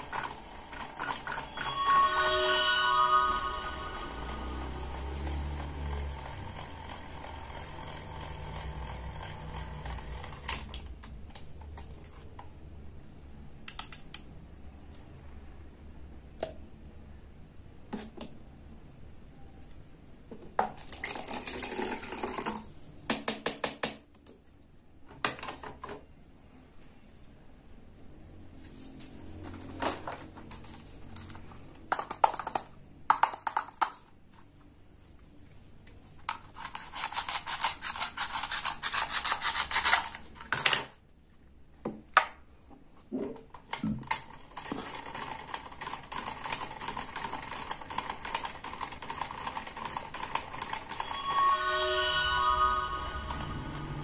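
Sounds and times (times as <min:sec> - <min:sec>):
toy hand mixer whirring: 0:04.2 - 0:10.5
plastic pieces clicking and tapping: 0:31.9 - 0:34.1.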